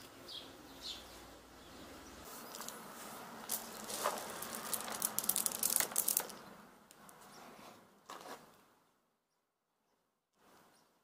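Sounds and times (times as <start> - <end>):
pellets clattering into bucket: 3.5 - 6.4.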